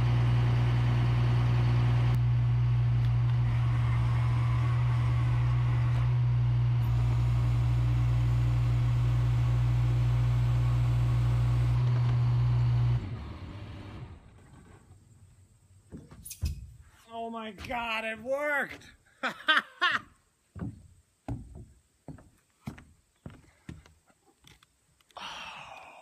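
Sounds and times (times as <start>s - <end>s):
truck engine humming: 0.0s - 14.3s.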